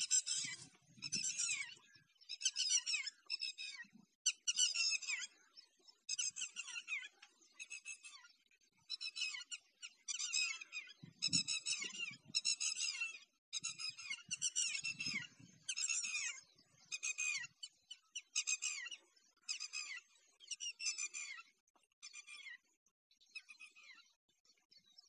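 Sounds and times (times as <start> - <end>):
birds chattering: 0.0 - 22.7.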